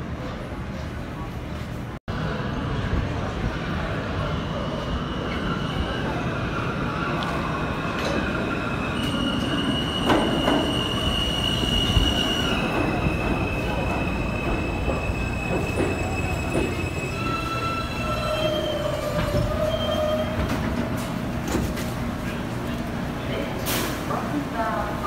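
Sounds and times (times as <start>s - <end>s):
subway train rumbling past: 0.0s - 25.0s
metallic squeal of brakes: 8.1s - 20.6s.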